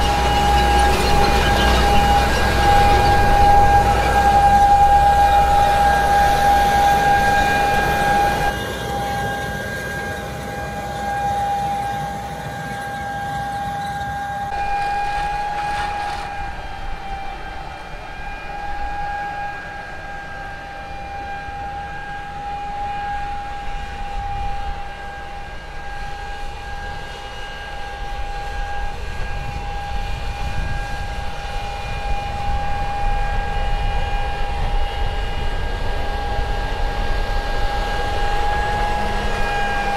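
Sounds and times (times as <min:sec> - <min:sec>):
tractor engine rumbling: 0:00.0 - 0:09.0, 0:12.8 - 0:20.2
steady high-pitched whine: 0:00.0 - 0:39.9.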